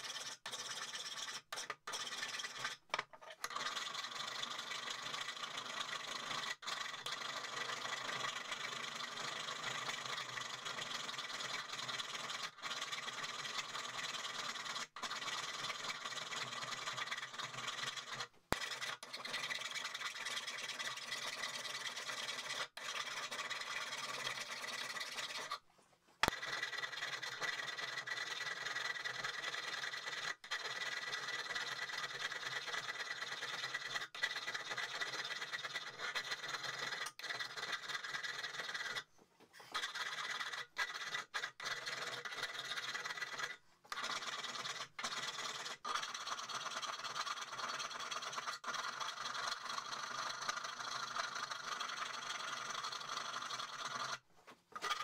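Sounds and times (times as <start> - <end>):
files rasping on steel: 32.8 - 46.2.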